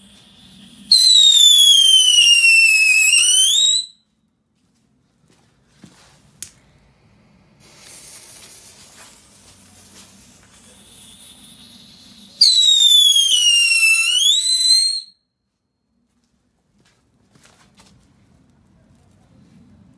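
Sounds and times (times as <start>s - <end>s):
firework hissing: 0.0s - 3.9s, 7.0s - 15.1s
firework whistle: 0.0s - 4.0s, 7.6s - 15.2s.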